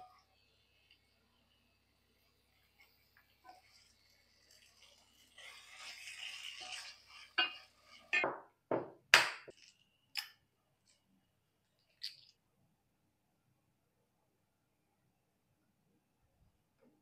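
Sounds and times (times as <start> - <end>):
wooden spatula scraping a pan: 2.6 - 8.2
sharp knocks on hard surfaces: 8.2 - 9.5.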